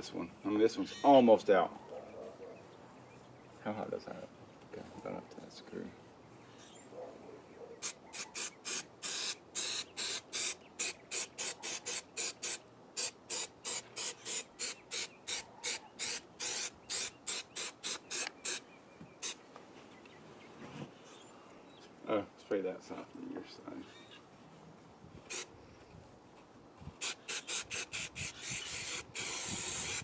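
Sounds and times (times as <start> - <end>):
aerosol spray hiss bursts: 7.8 - 18.6, 25.3 - 25.5, 27.0 - 30.0.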